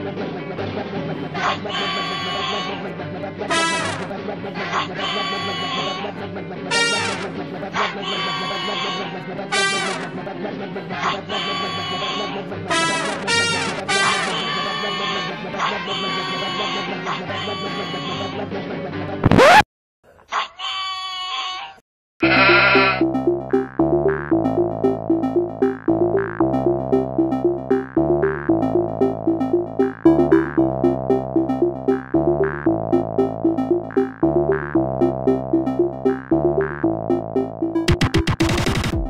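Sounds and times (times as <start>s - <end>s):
short quavering bleat: 1.6s - 2.8s, 4.7s - 6.0s, 20.6s - 23.0s
synthesizer music with steady beat: 23.0s - 39.0s.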